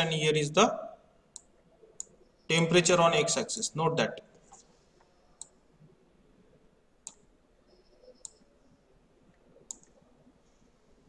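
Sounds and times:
faint computer mouse clicks: 7.0 - 7.2, 9.7 - 10.0.

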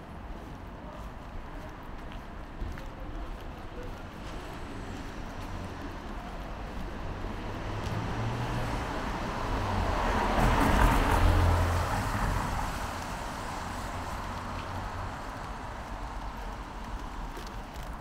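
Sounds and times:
traffic hum: 0.0 - 18.0
vehicle passing by: 7.2 - 15.2.

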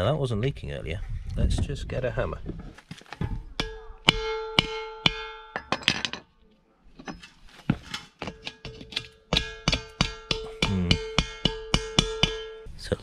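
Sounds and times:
hammer tapping steel tank: 3.6 - 5.8, 8.2 - 12.7.

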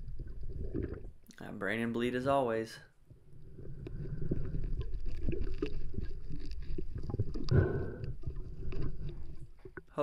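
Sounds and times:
low underwater rumble: 3.1 - 9.9.

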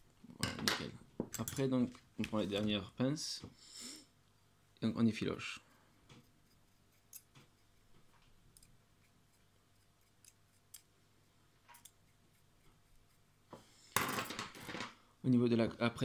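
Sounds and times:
metal tweezers clicking and scraping: 6.1 - 11.0, 11.7 - 13.2.

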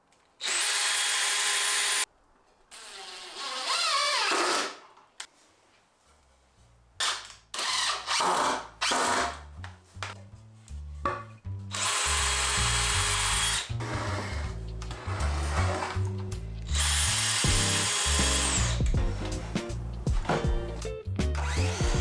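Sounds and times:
cordless drill driving screws: 0.4 - 2.1, 2.7 - 4.8, 11.7 - 14.4, 16.7 - 18.8, 21.4 - 22.0
background music with low beat: 14.4 - 22.0.

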